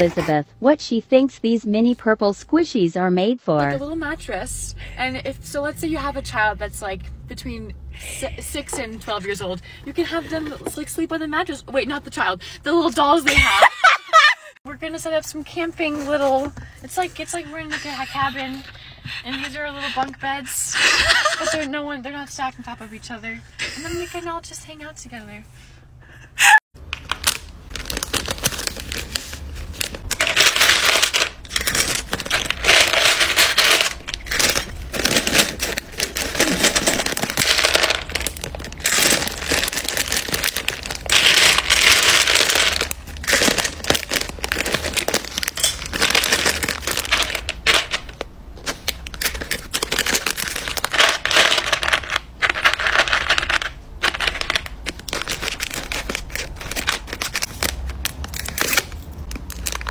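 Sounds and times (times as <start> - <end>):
plastic bag crinkling: 27.0 - 59.9
small charms clattering: 29.9 - 59.9.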